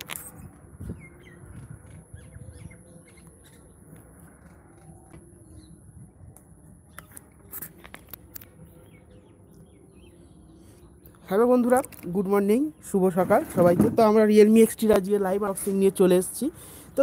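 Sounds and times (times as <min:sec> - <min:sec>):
faint high whine: 0:00.0 - 0:12.2
birds calling and chirping: 0:00.2 - 0:13.9.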